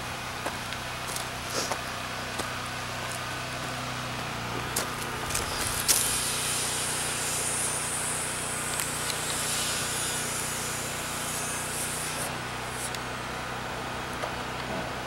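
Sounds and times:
steady low hum: 0.0 - 15.0
power tool cutting steel: 5.0 - 13.3.

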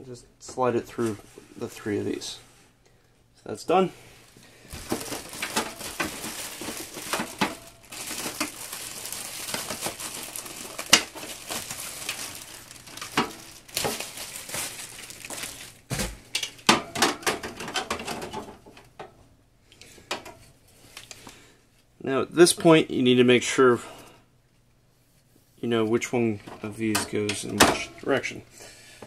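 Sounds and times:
plastic wrap crinkling: 4.2 - 16.7.

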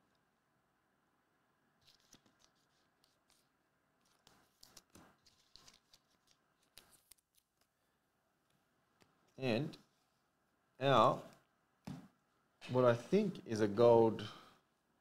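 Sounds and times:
trading cards clicking and rustling: 1.8 - 7.7.

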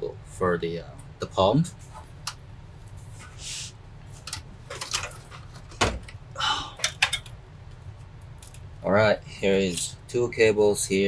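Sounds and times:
short scrape: 3.2 - 3.7.

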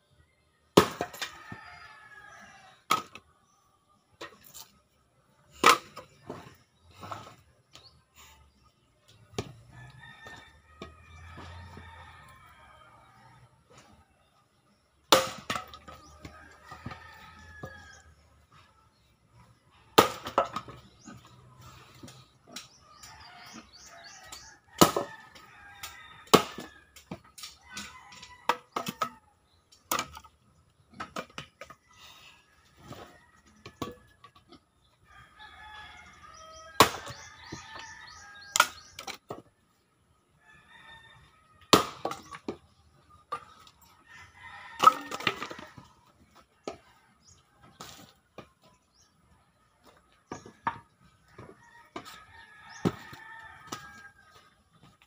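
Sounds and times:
axe splitting wood: 15.1 - 16.0, 20.0 - 20.8, 25.8 - 27.2, 36.8 - 37.9, 41.7 - 42.6
rooster crowing: 51.4 - 54.4.

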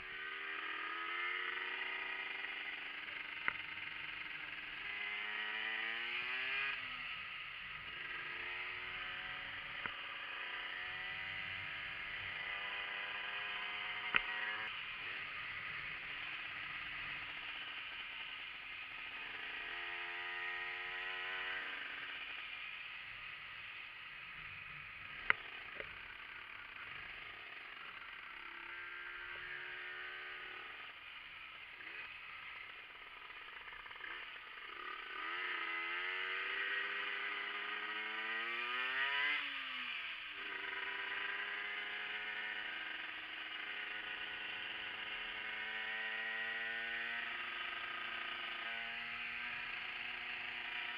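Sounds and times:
two-stroke motorcycle engine: 0.0 - 50.9.

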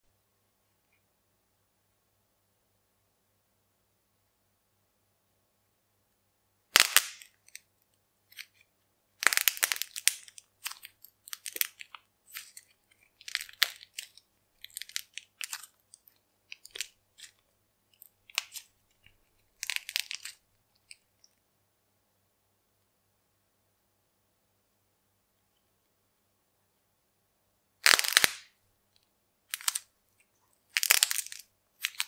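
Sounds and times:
modelling clay crackling and popping: 6.7 - 21.5, 27.8 - 32.0.

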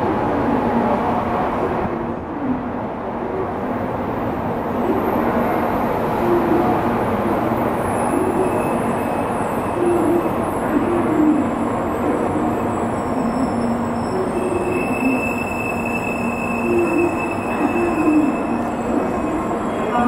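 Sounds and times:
faint wavering tones: 8.0 - 20.0.

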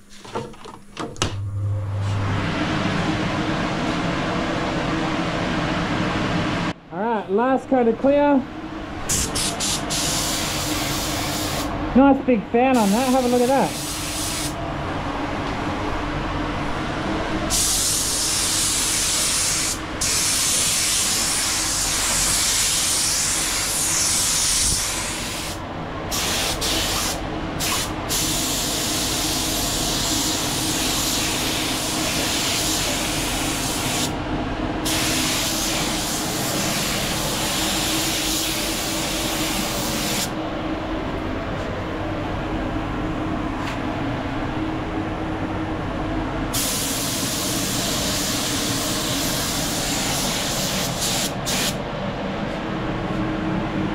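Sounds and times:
steady low hum: 0.0 - 53.9
spray gun hissing: 9.1 - 11.7, 12.8 - 14.6, 17.5 - 34.1, 34.8 - 40.3, 46.5 - 51.8.

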